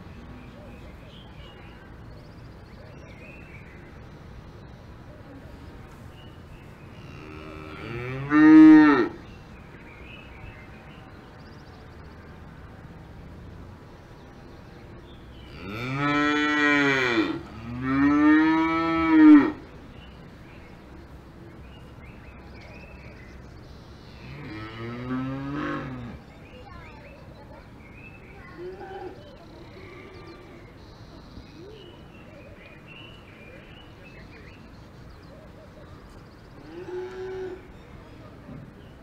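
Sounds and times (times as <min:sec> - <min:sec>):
cows mooing: 0:07.0 - 0:09.2, 0:15.5 - 0:19.6, 0:24.2 - 0:26.2.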